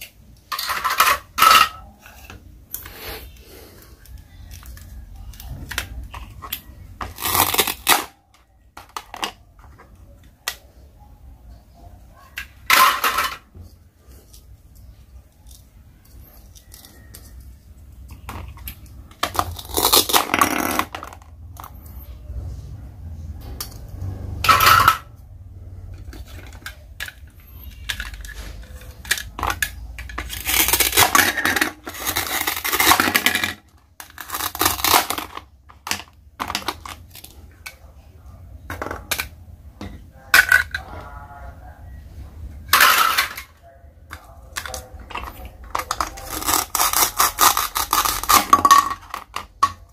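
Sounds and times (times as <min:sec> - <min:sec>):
plastic toy pieces clattering: 0:00.0 - 0:02.9, 0:04.0 - 0:10.6, 0:12.4 - 0:13.6, 0:15.4 - 0:21.8, 0:24.4 - 0:25.2, 0:26.0 - 0:37.8, 0:40.3 - 0:41.0, 0:42.6 - 0:49.9
plastic pieces rasping: 0:00.0 - 0:10.6, 0:15.4 - 0:21.8, 0:26.0 - 0:37.9, 0:42.6 - 0:49.9.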